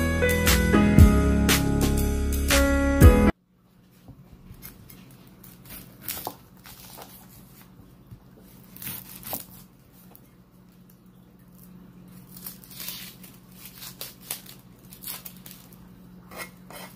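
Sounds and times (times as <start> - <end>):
low steady hum: 3.2 - 16.9
knife cutting through onion: 16.3 - 16.9.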